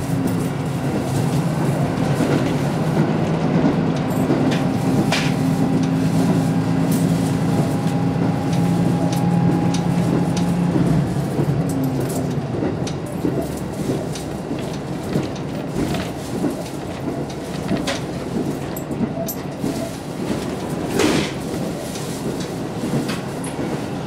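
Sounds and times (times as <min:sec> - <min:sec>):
diesel engine droning: 0:00.0 - 0:14.0
wheels rumbling on track: 0:00.0 - 0:24.0.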